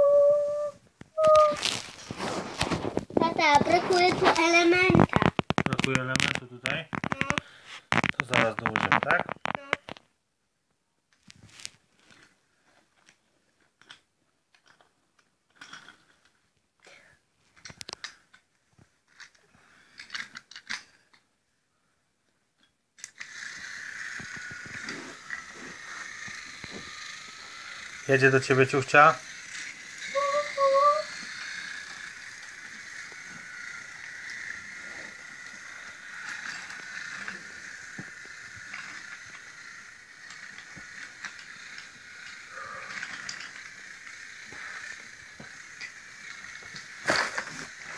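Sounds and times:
rustling: 0.8s - 10.0s, 11.2s - 13.8s, 23.2s - 47.9s
wooden toy track pieces clicking: 1.2s - 10.1s, 13.0s - 18.4s, 19.1s - 21.2s, 22.6s - 47.9s.

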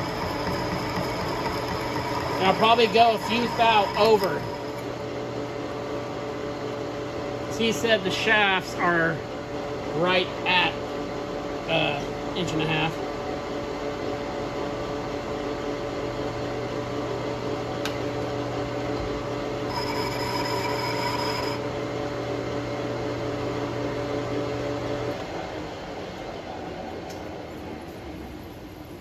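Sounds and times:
lathe cutting noise: 0.0s - 5.0s
metal lathe humming: 0.0s - 5.7s.

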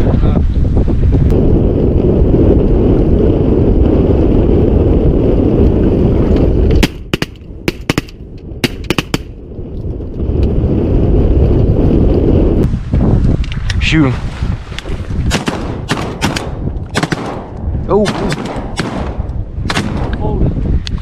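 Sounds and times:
wind buffeting microphone: 0.0s - 21.0s
shotgun shots: 6.8s - 9.3s, 15.3s - 20.2s.

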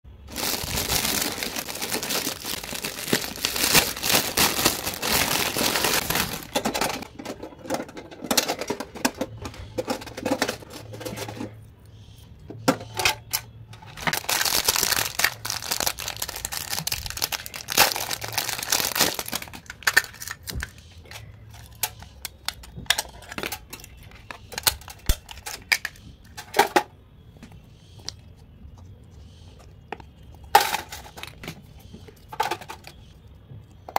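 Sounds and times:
plastic wrap crinkling and tearing: 0.2s - 7.0s, 13.9s - 20.7s
metal tin box handled: 0.9s - 11.6s
small items clicking and tapping: 12.5s - 28.3s.

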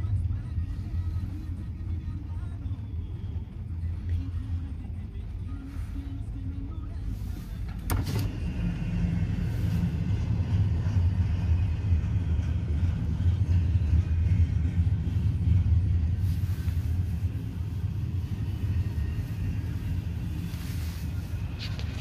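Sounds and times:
train rumbling past: 7.0s - 22.0s.

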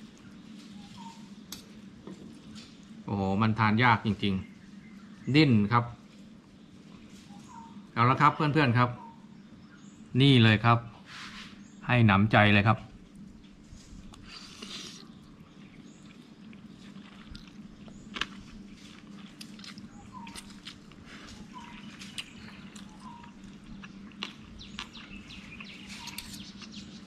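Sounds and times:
bird chirping faintly: 0.2s - 1.5s, 4.0s - 12.6s, 19.6s - 27.0s.

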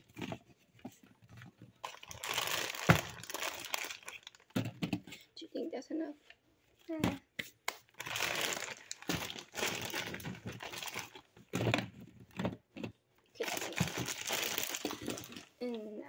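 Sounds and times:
plastic bag crinkling: 1.8s - 4.5s, 7.9s - 11.3s, 13.4s - 15.6s.

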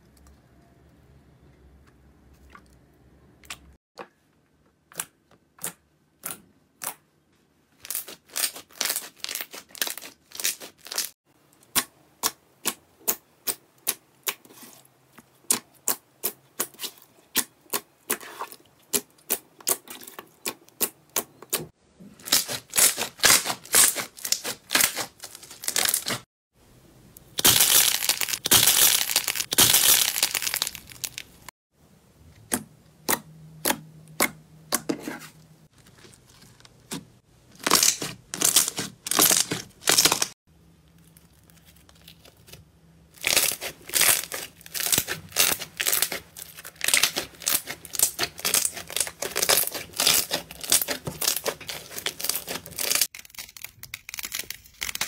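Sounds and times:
slime crackling and popping: 7.9s - 11.1s, 27.4s - 31.5s, 37.6s - 40.3s, 43.2s - 55.0s.

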